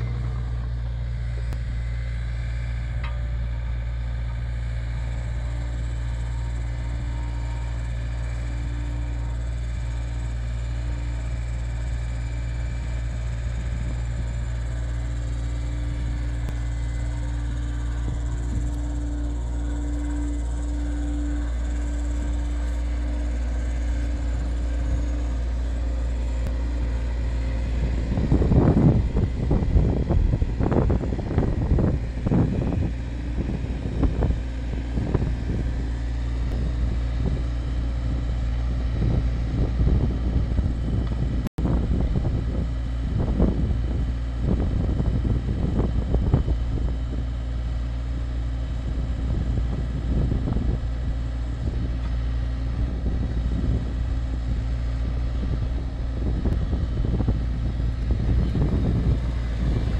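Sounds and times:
diesel engine running under load: 0:00.0 - 0:59.9
hydraulic auger whine: 0:00.0 - 0:59.9.

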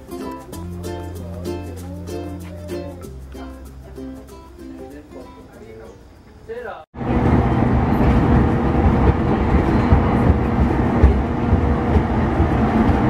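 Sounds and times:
train rumbling: 0:07.0 - 0:13.0.

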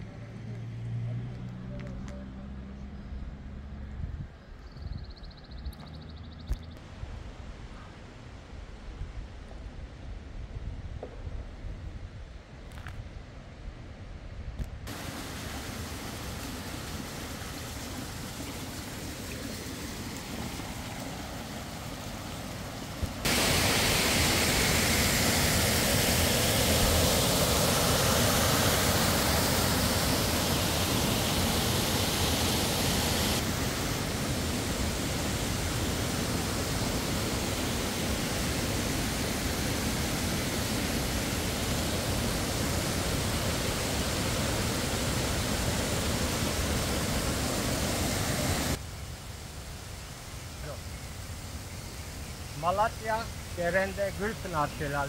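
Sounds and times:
waterfall rushing: 0:14.9 - 0:48.8, 0:51.4 - 0:55.0.

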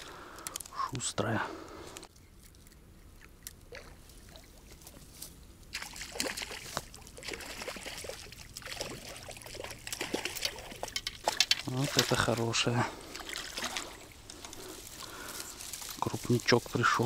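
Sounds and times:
faint clicks: 0:00.3 - 0:00.8
water splashing: 0:03.2 - 0:05.1, 0:05.7 - 0:16.9.

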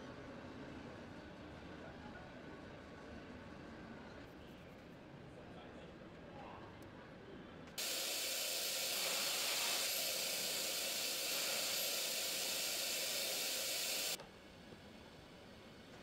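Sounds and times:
vacuum nozzle hissing: 0:07.8 - 0:14.2.

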